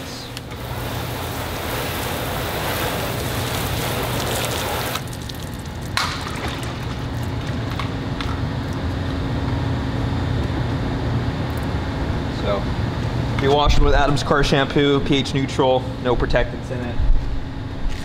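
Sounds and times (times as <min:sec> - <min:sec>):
hose nozzle spraying water: 0:00.4 - 0:05.5.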